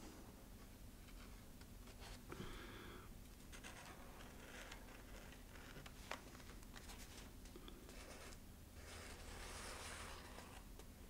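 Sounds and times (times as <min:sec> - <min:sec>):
marker scratching on foam: 0:08.0 - 0:10.6.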